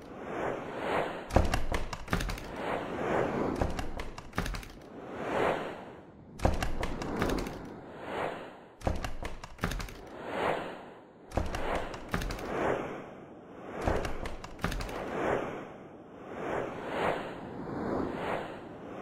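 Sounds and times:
whooshes: 0:00.0 - 0:19.0
sharp hits and thuds: 0:01.3 - 0:02.6, 0:03.6 - 0:04.8, 0:06.4 - 0:07.7, 0:08.8 - 0:10.1, 0:11.3 - 0:12.5, 0:13.8 - 0:15.1.

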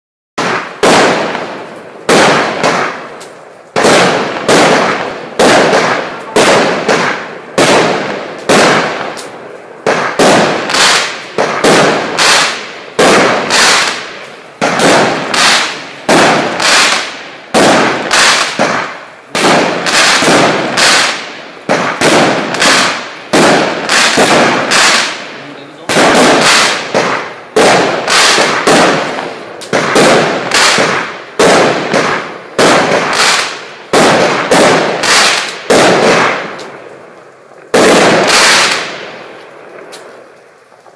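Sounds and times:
firework cake shots banging: 0:02.1 - 0:25.2.

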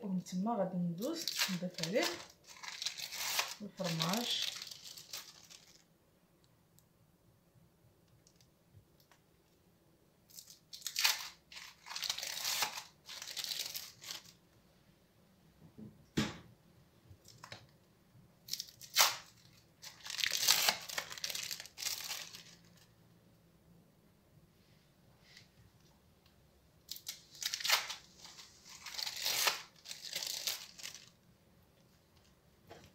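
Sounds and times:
plastic wrapping crinkling and tearing: 0:01.0 - 0:05.9, 0:10.3 - 0:14.4, 0:18.4 - 0:22.9, 0:26.9 - 0:31.2.

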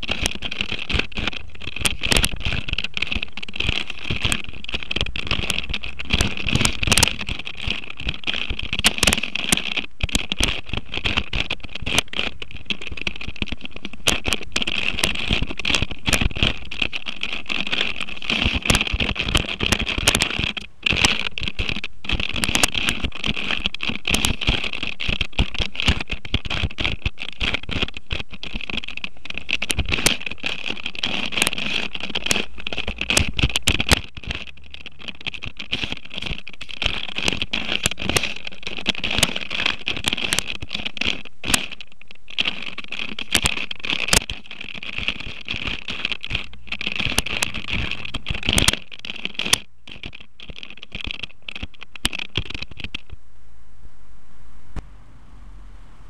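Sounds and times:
plastic cube clicking and scraping: 0:00.0 - 0:53.2
steady high-pitched hiss: 0:52.7 - 0:56.0.

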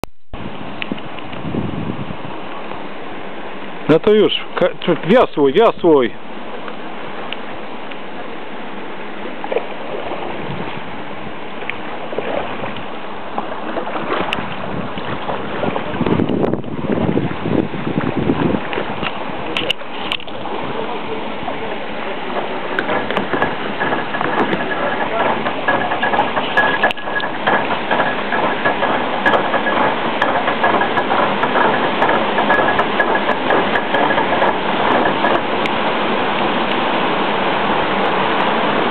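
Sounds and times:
rushing water: 0:00.4 - 0:38.9
small splashes: 0:11.5 - 0:38.9
clicks and knocks: 0:22.3 - 0:35.8.

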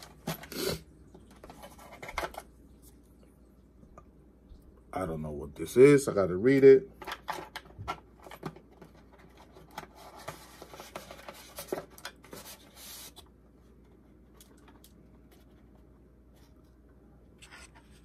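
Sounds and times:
paper and cardboard rustling: 0:01.3 - 0:02.5, 0:07.0 - 0:16.7.

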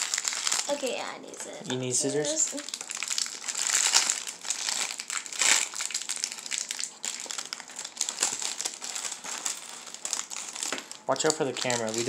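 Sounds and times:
plastic wrapper crinkling: 0:00.0 - 0:01.5, 0:02.1 - 0:12.0.

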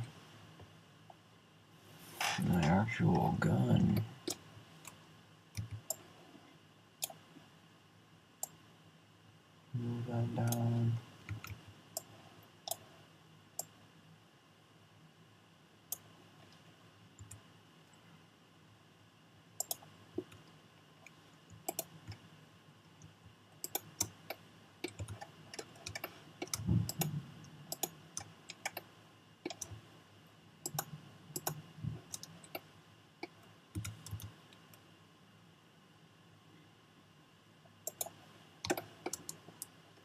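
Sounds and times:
mouse and keyboard clicks: 0:21.5 - 0:22.2, 0:23.6 - 0:29.8, 0:30.6 - 0:34.4, 0:37.8 - 0:39.7
soft low thumps: 0:26.6 - 0:27.4.

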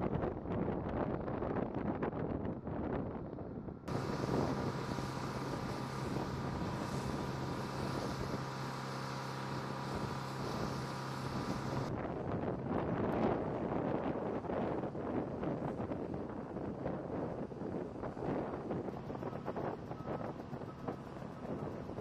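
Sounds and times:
engine drone: 0:00.0 - 0:22.0
wind buffeting microphone: 0:00.0 - 0:22.0
faint high whine: 0:03.9 - 0:12.0.

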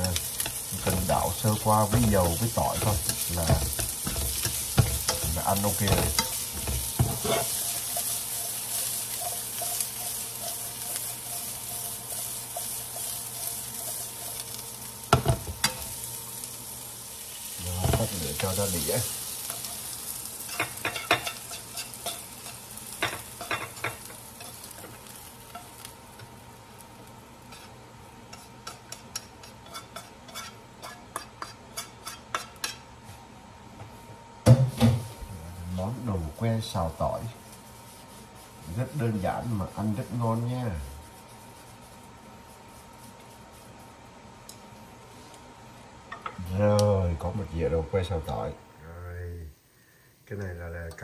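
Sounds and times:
vegetables sizzling in oil: 0:00.0 - 0:33.2, 0:34.4 - 0:51.0
frying pan clatter: 0:00.1 - 0:14.4, 0:15.1 - 0:16.0, 0:20.5 - 0:25.9.

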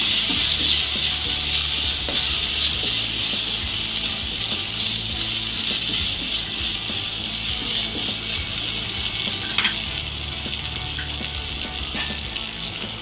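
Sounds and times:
vegetables sizzling in hot oil: 0:00.0 - 0:13.0.

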